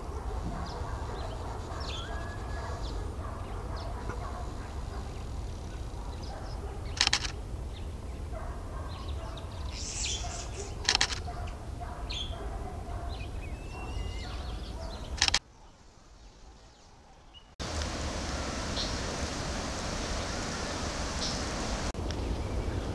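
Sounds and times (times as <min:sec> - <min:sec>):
small birds chirping: 0:00.0 - 0:22.9
bird's harsh call: 0:00.6 - 0:07.9, 0:08.9 - 0:11.2, 0:13.1 - 0:15.4.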